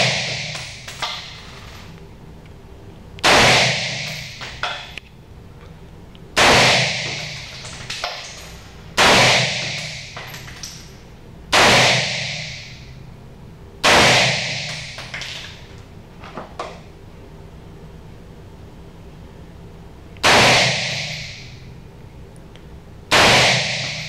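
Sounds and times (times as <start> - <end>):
rifle shots echoing indoors: 0.0 - 1.8, 3.2 - 5.0, 6.3 - 13.0, 13.8 - 15.7, 20.2 - 21.7, 23.1 - 24.0.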